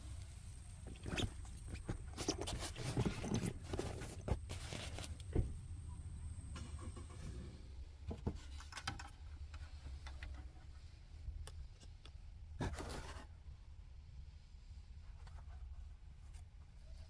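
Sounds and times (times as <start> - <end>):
low steady rumble: 0.0 - 8.3
short rustle: 0.2 - 5.4.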